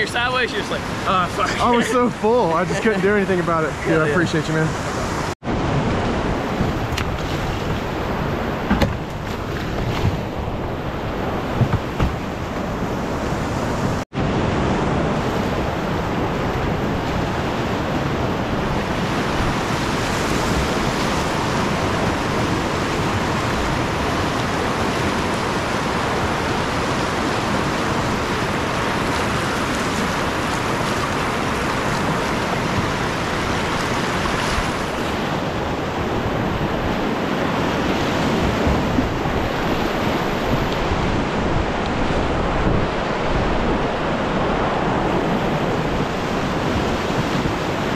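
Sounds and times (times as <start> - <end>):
whitewater rapids rushing: 15.1 - 47.9.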